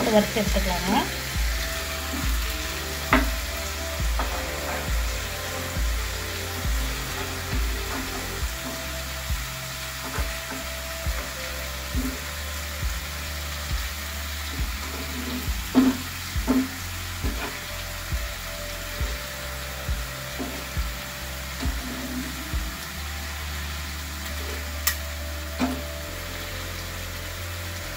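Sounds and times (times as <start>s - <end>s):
fish sizzling in oil: 0.0s - 27.9s
steel spatula scraping: 1.0s - 11.0s.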